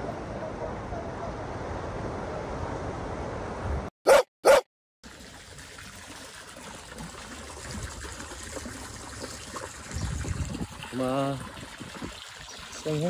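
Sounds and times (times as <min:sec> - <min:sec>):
dog barking: 0:04.1 - 0:04.7
water trickling: 0:05.0 - 0:13.0.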